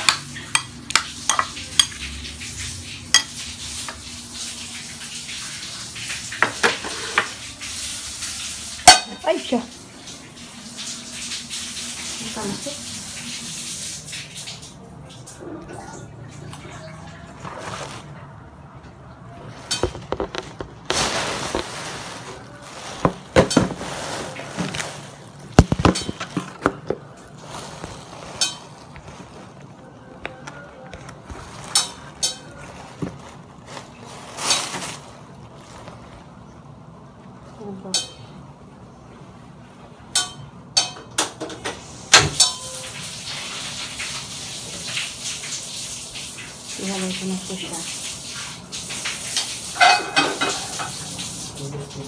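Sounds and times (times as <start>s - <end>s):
metal pots and utensils clinking: 0.0s - 2.2s, 8.8s - 9.5s, 19.6s - 20.6s, 21.4s - 25.0s, 25.6s - 27.0s, 28.1s - 29.4s, 31.5s - 33.3s, 37.8s - 38.3s, 40.1s - 42.9s, 49.4s - 51.0s.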